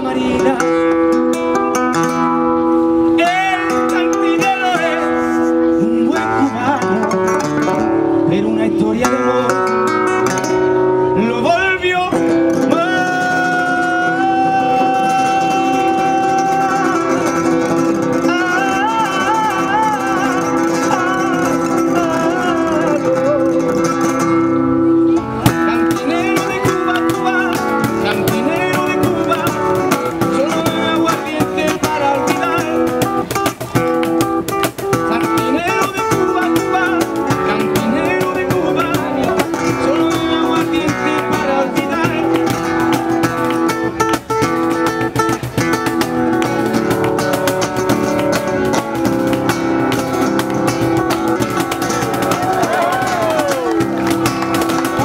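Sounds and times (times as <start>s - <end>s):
man singing: 0.0s - 1.9s, 3.1s - 24.4s, 25.5s - 33.6s, 34.8s - 49.3s
acoustic guitar strumming: 0.0s - 55.0s
percussion strikes: 25.2s - 55.0s.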